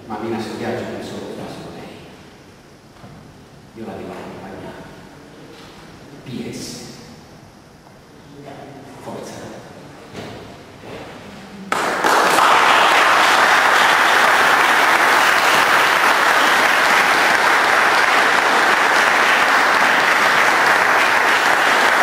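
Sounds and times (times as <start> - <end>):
audience applause: 11.7 - 22.0.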